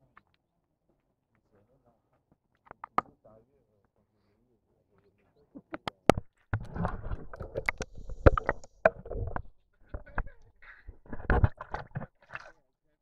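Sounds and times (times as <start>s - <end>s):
water sloshing and splashing: 6.1s - 12.6s.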